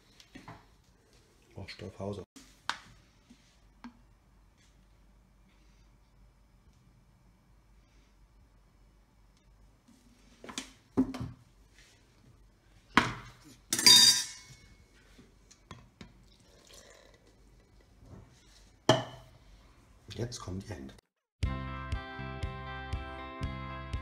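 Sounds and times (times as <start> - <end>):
spoon clinking against metal bowl: 13.8 - 14.6.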